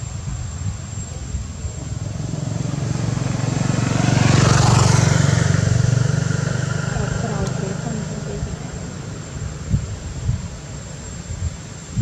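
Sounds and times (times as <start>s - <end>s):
vehicle passing close by: 1.6s - 11.1s.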